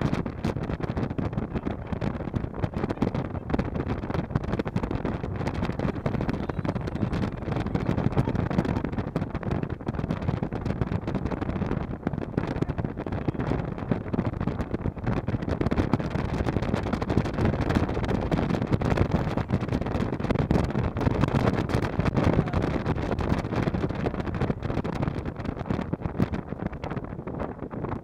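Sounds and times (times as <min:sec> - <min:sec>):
wind buffeting microphone: 0:00.0 - 0:28.0
tyre and engine rumble: 0:01.4 - 0:10.1.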